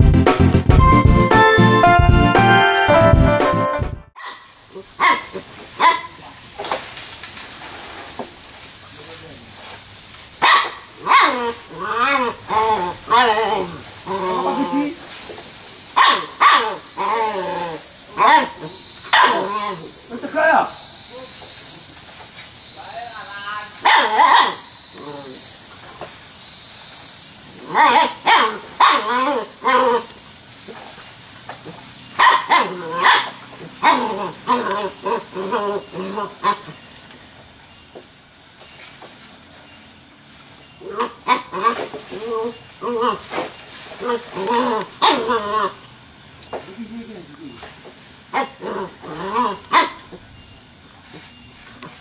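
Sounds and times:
puppy yapping: 4.2s - 6.2s, 10.4s - 15.0s, 16.0s - 19.9s, 22.9s - 25.4s, 27.6s - 30.2s, 31.7s - 36.9s, 44.0s - 45.8s, 48.3s - 50.2s
high-pitched insect buzz: 4.2s - 37.2s.

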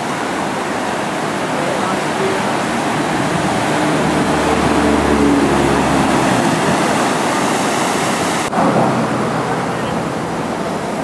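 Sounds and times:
ocean surf rushing: 0.0s - 11.0s.

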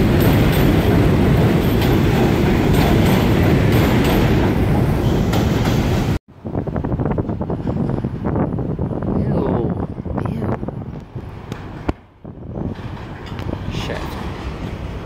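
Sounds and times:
subway train rumbling: 0.0s - 15.0s.

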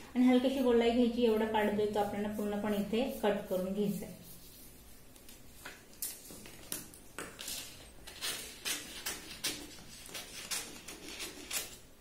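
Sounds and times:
scissors snipping paper: 7.4s - 11.9s.

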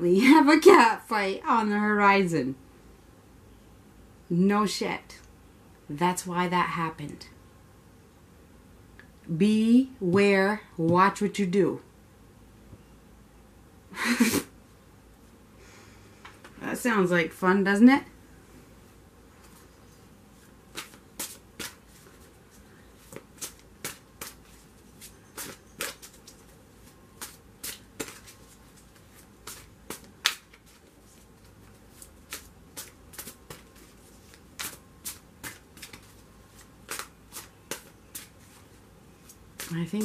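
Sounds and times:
cards being shuffled: 20.7s - 40.0s.

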